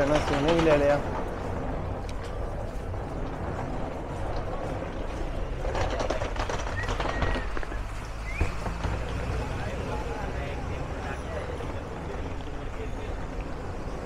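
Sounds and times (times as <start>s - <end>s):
faint chatter of passers-by: 0.0s - 14.0s
traffic rumble: 0.0s - 14.0s.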